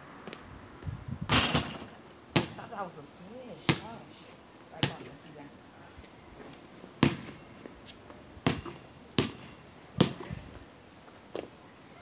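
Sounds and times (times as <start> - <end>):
basketball bouncing on concrete: 1.3 - 2.6, 3.7 - 4.0, 4.8 - 5.2, 7.0 - 7.4, 8.4 - 10.3.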